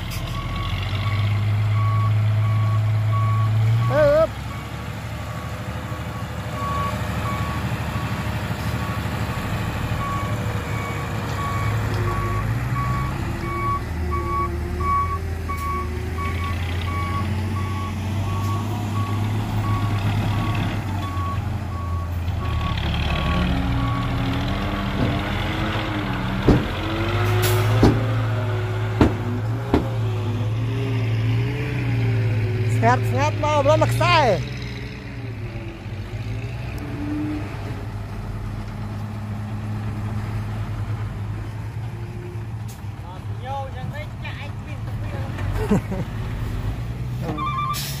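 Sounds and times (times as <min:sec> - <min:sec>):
diesel engine running: 0:00.0 - 0:48.0
reversing beeper: 0:05.4 - 0:08.2, 0:08.8 - 0:24.2, 0:47.3 - 0:48.0
sharp knocks: 0:26.4 - 0:26.8, 0:27.8 - 0:28.1, 0:29.0 - 0:30.0.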